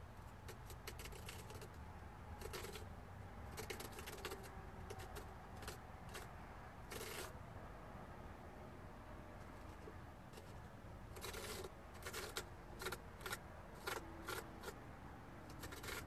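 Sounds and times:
carving tool cutting into pumpkin: 0:06.9 - 0:07.4, 0:11.2 - 0:14.8, 0:15.5 - 0:16.0.

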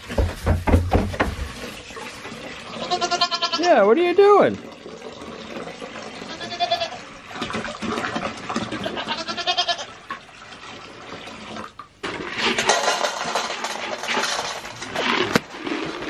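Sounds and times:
goat bleating: 0:02.8 - 0:03.8, 0:06.2 - 0:07.1, 0:08.8 - 0:10.0.

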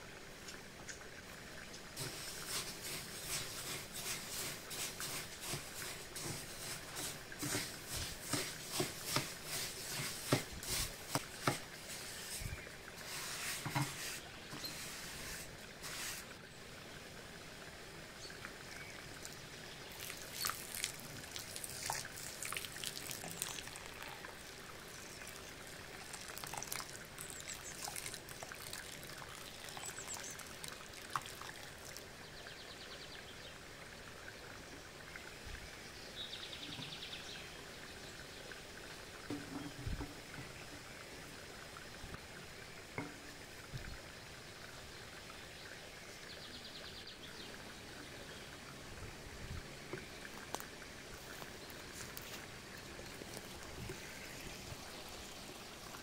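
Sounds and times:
liquid pouring and trickling: 0:00.4 - 0:16.5, 0:17.6 - 0:32.6, 0:38.6 - 0:45.2, 0:49.8 - 0:56.0.

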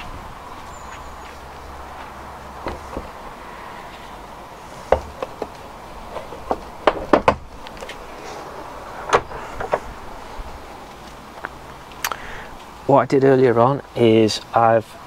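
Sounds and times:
car bonnet clicks and clunks: 0:04.9 - 0:08.0, 0:09.0 - 0:10.0.

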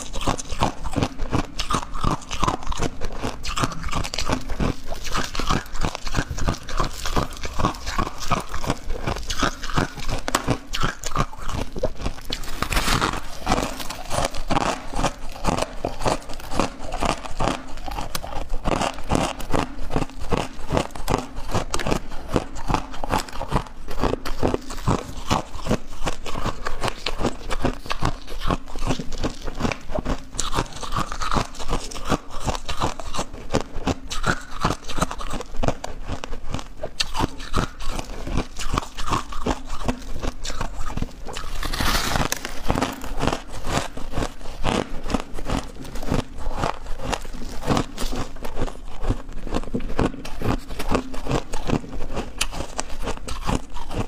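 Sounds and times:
crushed ice crunching: 0:11.0 - 0:18.2, 0:41.4 - 0:43.9.

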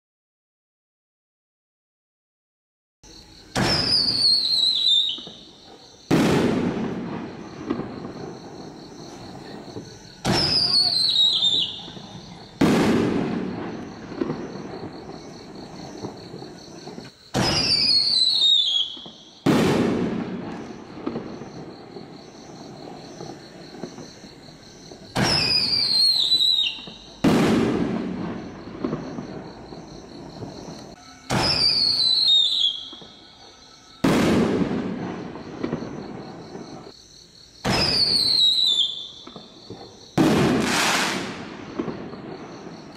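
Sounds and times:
firework bang: 0:03.5 - 0:33.2, 0:34.0 - 0:36.9, 0:37.6 - 0:42.9
firework whistle falling in pitch: 0:03.6 - 0:05.4, 0:31.0 - 0:33.3.

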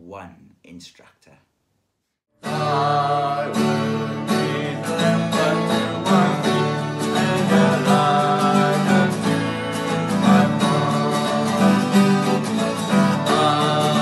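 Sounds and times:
acoustic guitar chords: 0:02.4 - 0:14.0.

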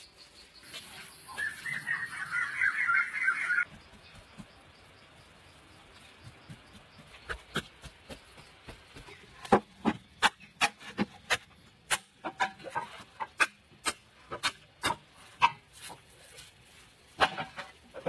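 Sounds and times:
bamboo being chopped: 0:09.4 - 0:16.0.

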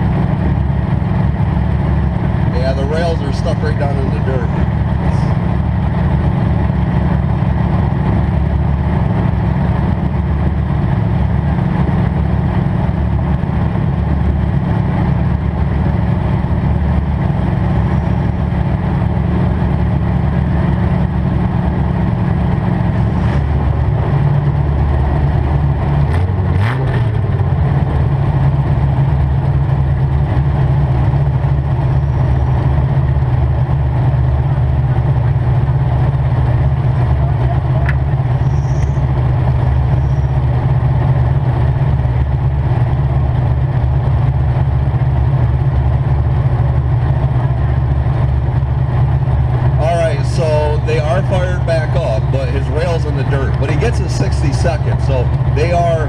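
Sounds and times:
car engine idling: 0:00.0 - 0:56.0
engine revving: 0:02.0 - 0:06.7, 0:16.8 - 0:29.4, 0:49.6 - 0:56.0.

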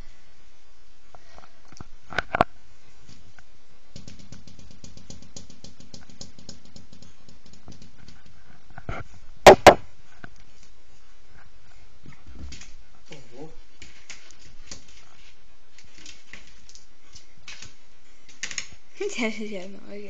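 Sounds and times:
cat taps on hard floor: 0:03.9 - 0:08.2
loud thumps: 0:09.4 - 0:09.8.

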